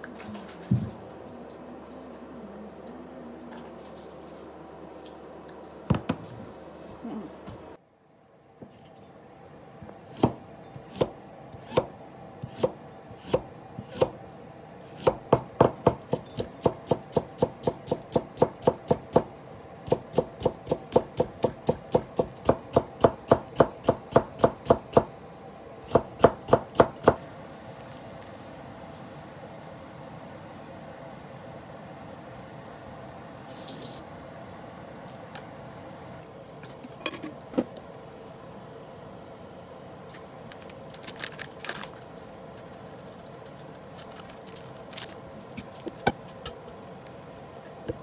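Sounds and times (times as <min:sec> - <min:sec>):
knife chopping on wooden board: 0:10.1 - 0:14.2, 0:15.0 - 0:19.3.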